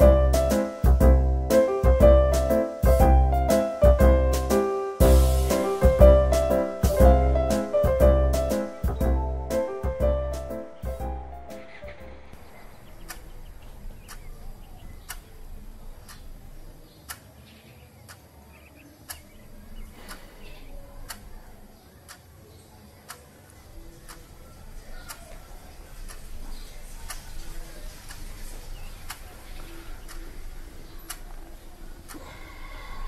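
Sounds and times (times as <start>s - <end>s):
wall clock ticking: 10.8s - 16.5s, 21.0s - 21.5s, 23.9s - 32.4s.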